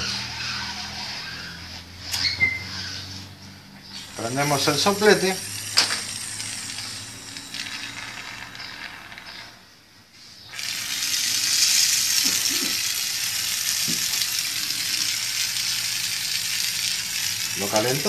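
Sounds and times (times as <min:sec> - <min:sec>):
gas torch hissing: 0:04.0 - 0:08.7, 0:10.5 - 0:18.0.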